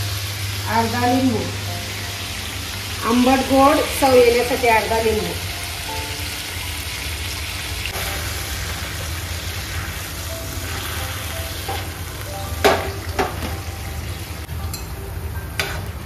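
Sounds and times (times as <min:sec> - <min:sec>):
oil sizzling in a frying pan: 0:00.0 - 0:16.0.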